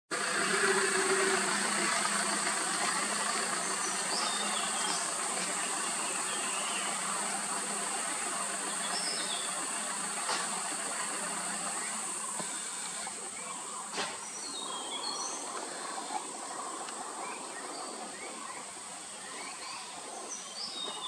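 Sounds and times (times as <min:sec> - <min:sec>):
high-pitched insect chorus: 0:00.2 - 0:21.0.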